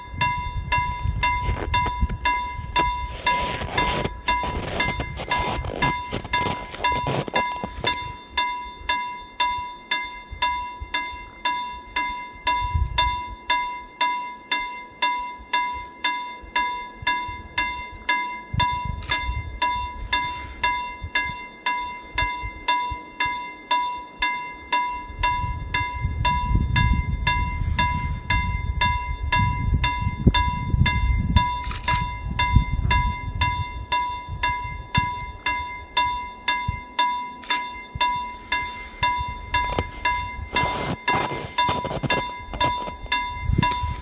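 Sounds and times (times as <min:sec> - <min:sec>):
level crossing warning bell: 0:00.0 - 0:44.0.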